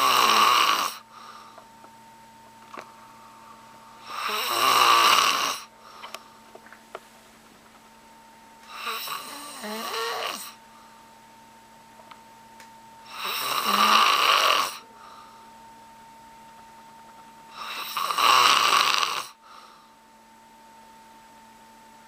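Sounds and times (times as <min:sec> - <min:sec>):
man snoring loudly: 0:00.0 - 0:01.0, 0:04.0 - 0:05.7, 0:08.7 - 0:10.6, 0:13.1 - 0:14.8, 0:17.5 - 0:19.4.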